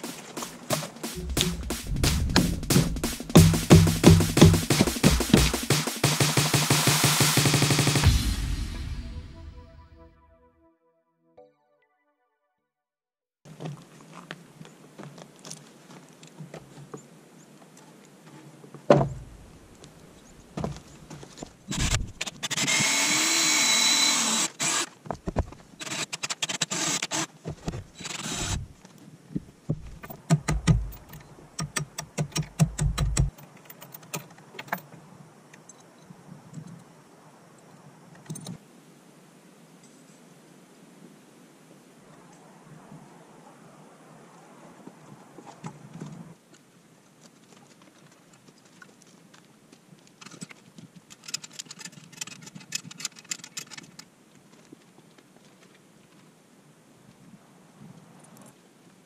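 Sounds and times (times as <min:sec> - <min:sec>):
power drill running: 0:21.7 - 0:24.9, 0:25.8 - 0:27.3, 0:28.0 - 0:28.6.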